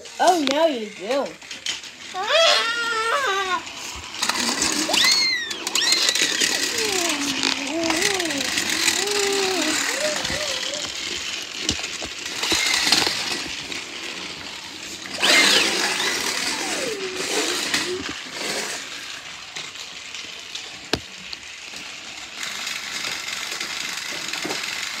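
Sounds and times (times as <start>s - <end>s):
toy train motor whirring: 0.0s - 25.0s
child's high cry: 2.1s - 3.8s, 4.8s - 11.0s, 15.4s - 18.2s.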